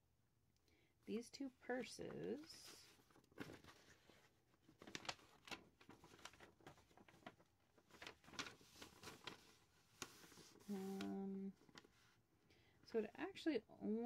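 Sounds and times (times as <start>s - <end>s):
paper sheet rustling: 1.7s - 12.2s.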